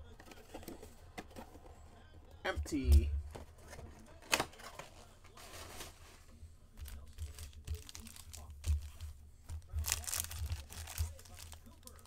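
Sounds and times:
plastic wrappers crinkling: 6.8 - 12.0.

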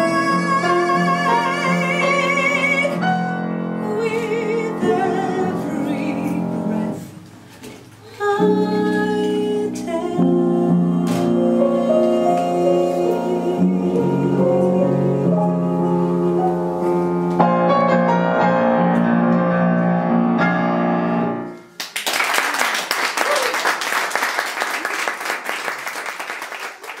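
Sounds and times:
woman singing: 0.0 - 7.2, 8.0 - 16.8
piano chords: 0.0 - 7.4, 8.2 - 21.8
audience applause: 21.8 - 27.0.

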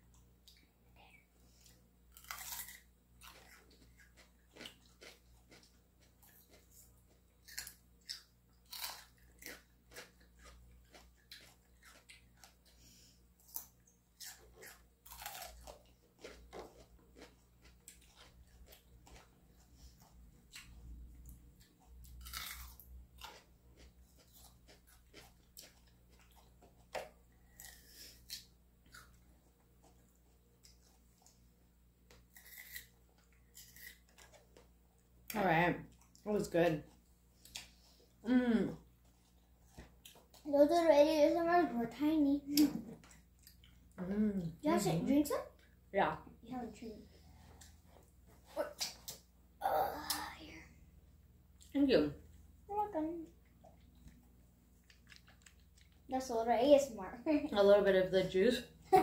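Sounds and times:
crunching fruit: 1.6 - 12.8, 13.4 - 29.2, 32.1 - 34.8, 53.5 - 56.1.

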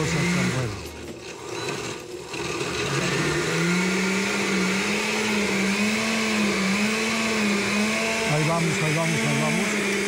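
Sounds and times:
blender motor running: 0.0 - 10.0.

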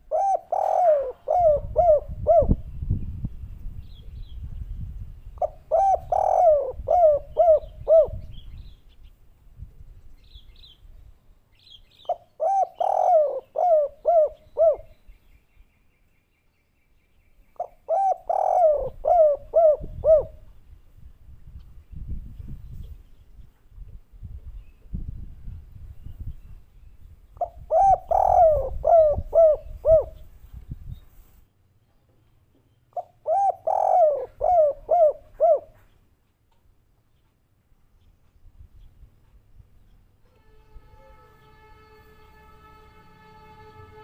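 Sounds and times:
dove cooing: 0.0 - 2.6, 5.4 - 8.4, 12.1 - 14.9, 17.6 - 20.5, 27.4 - 30.2, 33.0 - 35.9.

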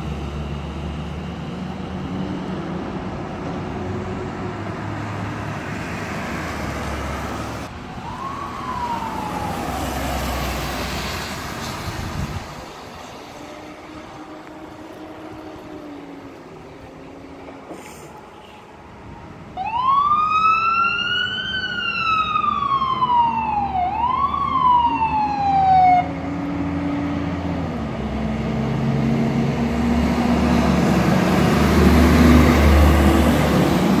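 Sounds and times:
large vehicle engine rumble: 0.0 - 19.6
emergency siren wailing: 6.0 - 11.4, 12.5 - 27.6.

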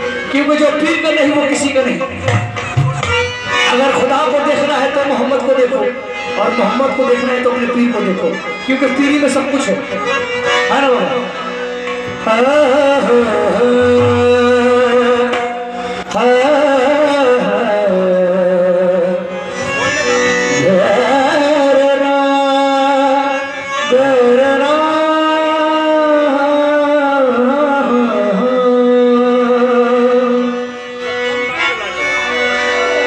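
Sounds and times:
sustained harmonium: 0.0 - 33.0
man singing long wavering notes: 12.2 - 31.6.

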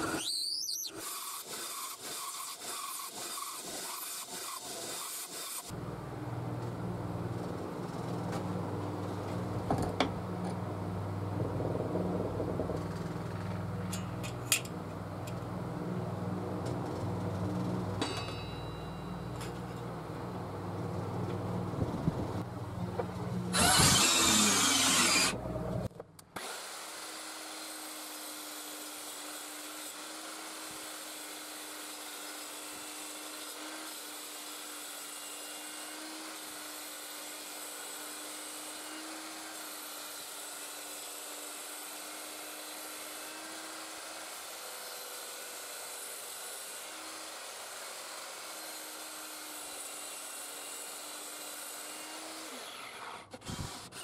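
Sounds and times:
saw blade whirring through wood: 0.0 - 5.8, 23.4 - 54.0.

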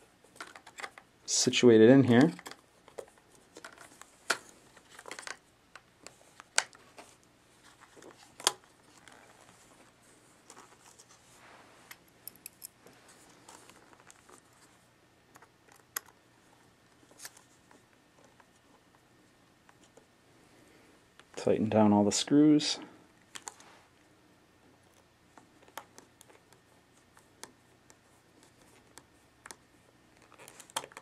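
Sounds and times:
metal parts clicking and tapping: 12.2 - 12.8.

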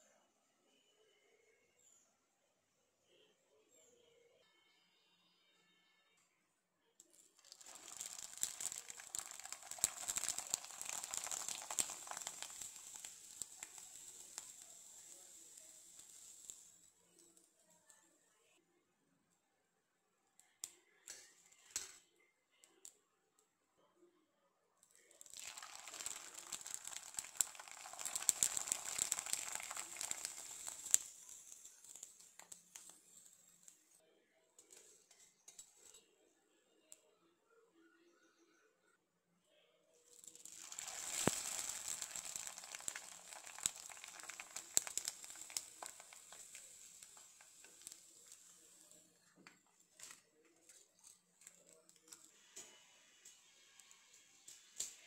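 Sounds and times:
papad deep-frying in hot oil: 7.1 - 18.6, 20.4 - 22.1, 24.8 - 34.0, 34.6 - 36.0, 40.0 - 55.0.

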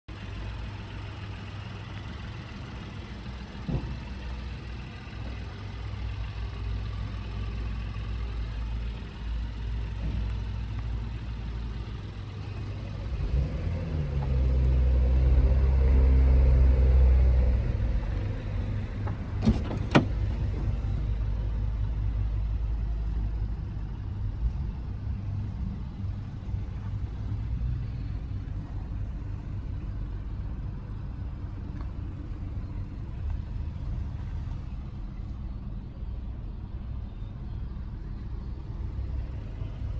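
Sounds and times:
car engine idling: 0.1 - 39.9.

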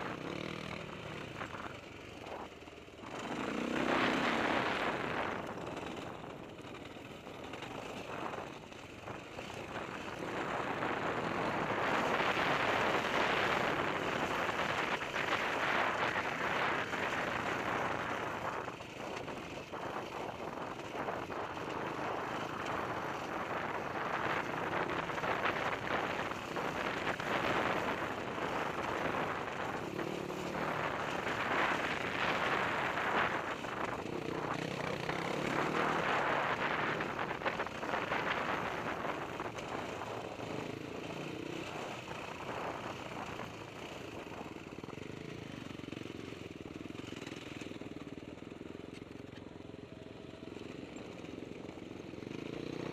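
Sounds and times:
dirt bike engine revving: 3.0 - 6.0, 21.7 - 39.2.

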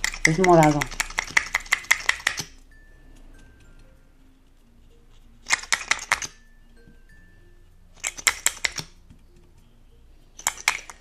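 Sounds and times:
plastic tubes clicking: 0.0 - 2.6, 5.4 - 6.4, 8.0 - 9.2, 10.3 - 11.0.

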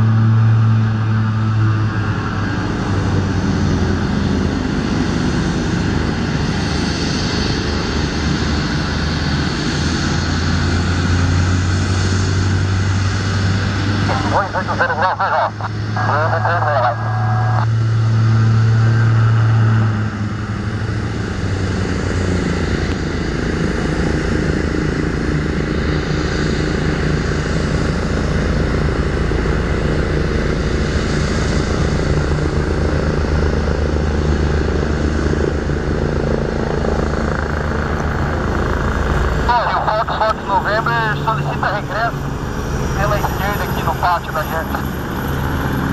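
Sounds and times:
helicopter rotors and engines: 0.0 - 45.9.

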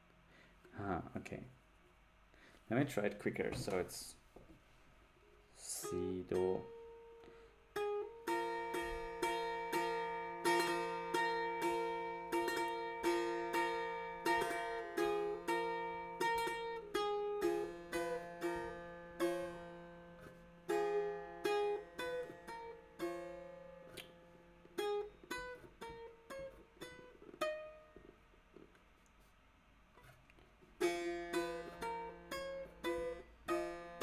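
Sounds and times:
plucked setar notes: 5.6 - 28.2, 30.8 - 34.0.

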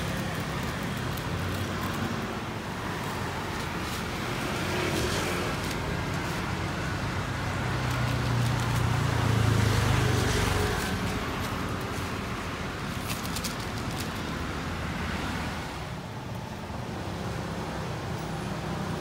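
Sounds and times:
roadside din: 0.0 - 19.0
vehicle engine humming: 0.0 - 19.0.

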